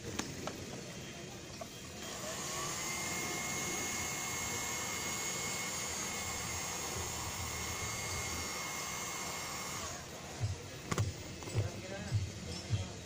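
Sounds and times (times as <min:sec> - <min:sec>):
heat gun blowing air: 0:02.0 - 0:10.1.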